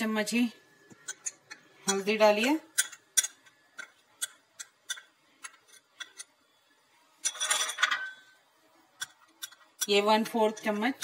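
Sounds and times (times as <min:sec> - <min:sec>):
spoon clinking on glass bowls: 0:07.2 - 0:08.4.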